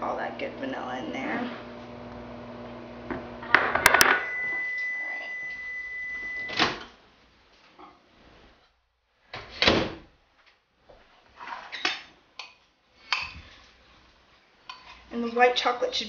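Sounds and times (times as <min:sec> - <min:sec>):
microwave oven humming: 0:01.5 - 0:06.6
microwave beep: 0:03.8 - 0:06.7.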